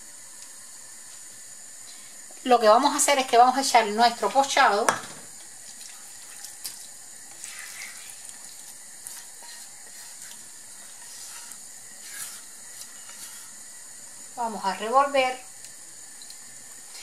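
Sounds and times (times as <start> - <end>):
beans simmering in a pot: 0.0 - 17.0
sauce scraped from a pan: 6.0 - 13.6.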